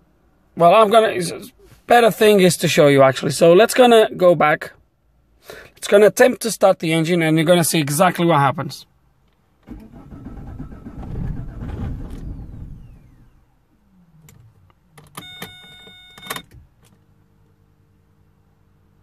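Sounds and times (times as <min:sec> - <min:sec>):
diesel engine cranking: 0:09.6 - 0:17.0
short electronic beep: 0:15.2 - 0:16.4.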